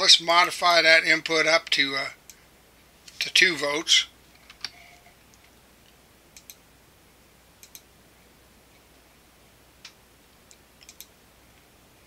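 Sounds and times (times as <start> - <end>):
faint computer mouse clicks: 6.4 - 6.6, 7.6 - 7.9, 9.8 - 11.1.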